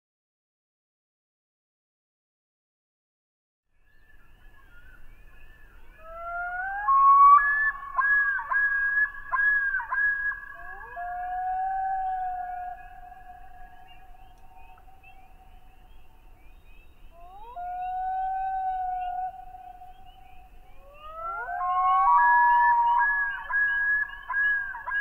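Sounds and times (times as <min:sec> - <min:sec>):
loons wailing: 0:10.6 - 0:13.0, 0:20.8 - 0:25.0.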